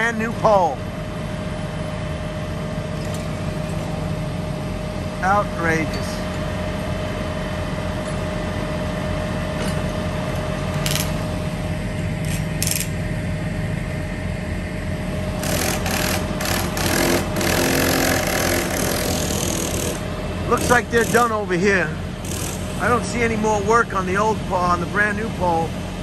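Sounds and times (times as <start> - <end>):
thin steady whine: 0.0 - 26.0
truck engines humming: 2.7 - 26.0
clattering work noise: 3.0 - 4.0, 9.5 - 11.3, 12.2 - 13.0, 15.4 - 21.5, 22.2 - 24.3.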